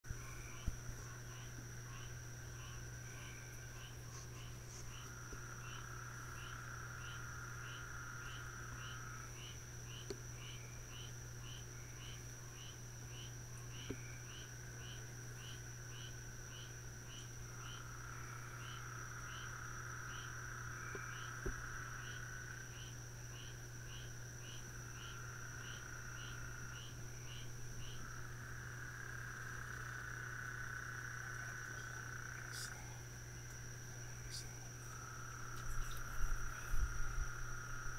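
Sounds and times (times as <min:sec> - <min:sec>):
steady low hum: 0:00.0 - 0:37.9
high-pitched insect whine: 0:00.1 - 0:37.9
regular chirping: 0:31.3 - 0:37.3.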